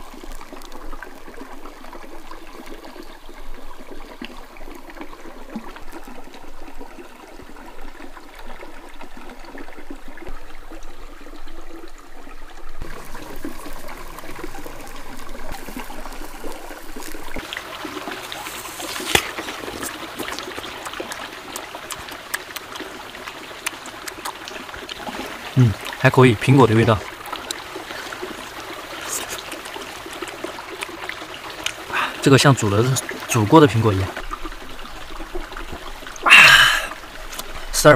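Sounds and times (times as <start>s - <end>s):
small crackles: 0.0s - 9.4s, 12.8s - 26.0s, 27.2s - 32.2s
creek water trickling over stones: 0.0s - 37.9s
biting and chewing apple: 18.8s - 24.5s.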